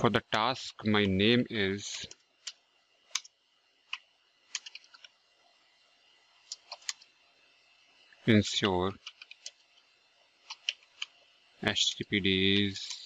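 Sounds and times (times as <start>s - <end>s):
keyboard keystrokes: 3.9s - 5.1s.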